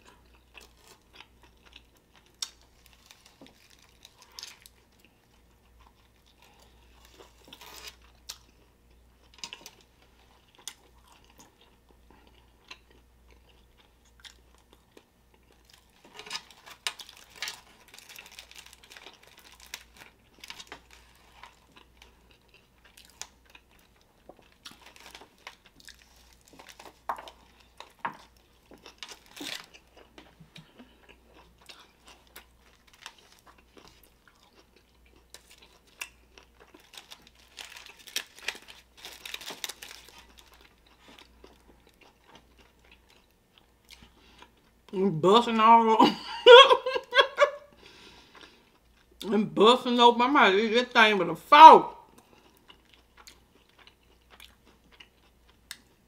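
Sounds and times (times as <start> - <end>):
wet chewing sounds: 0.0 - 44.8, 52.1 - 56.0
foil wrapper crinkling: 2.3 - 5.0, 7.0 - 8.0, 15.6 - 21.8, 24.6 - 28.0, 28.7 - 29.8, 32.1 - 34.1, 35.4 - 41.6.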